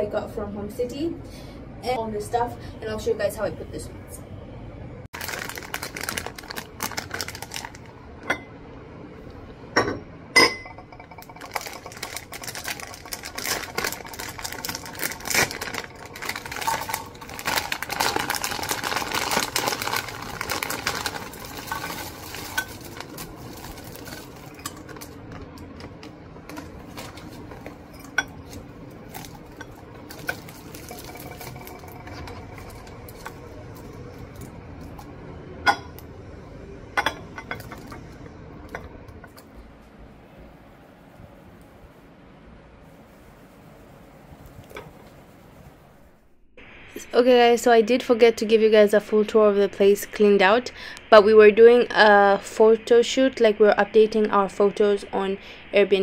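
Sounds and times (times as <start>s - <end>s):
wrapped sweets rattling into glass bowl: 5.2s - 7.9s, 10.9s - 25.6s, 26.5s - 35.0s
crinkling wrappers: 5.2s - 8.0s, 11.2s - 35.0s
glass lid clinking: 9.8s - 11.4s.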